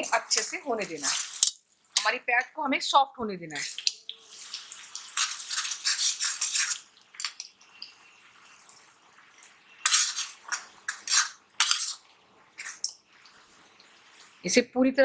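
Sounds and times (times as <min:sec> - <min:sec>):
onion sizzling in oil: 0:00.0 - 0:02.2, 0:03.6 - 0:14.6
metal spatula scraping pan: 0:05.1 - 0:06.9, 0:09.7 - 0:12.9.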